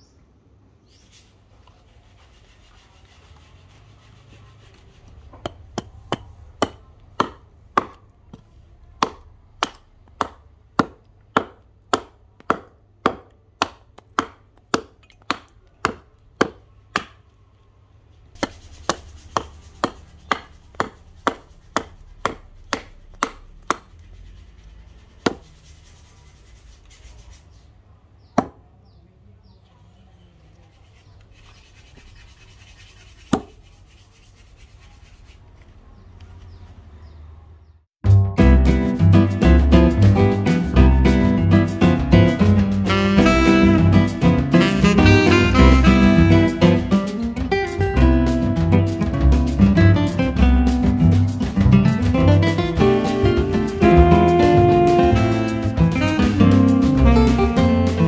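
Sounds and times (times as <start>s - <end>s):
hatchet chopping wood: 5.4s - 17.2s, 18.4s - 23.9s, 28.4s - 28.6s, 33.3s - 33.5s.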